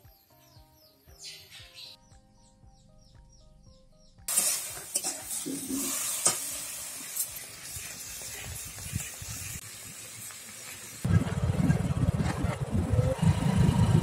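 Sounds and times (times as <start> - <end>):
tomatoes sizzling in a pan: 4.3 - 11.1.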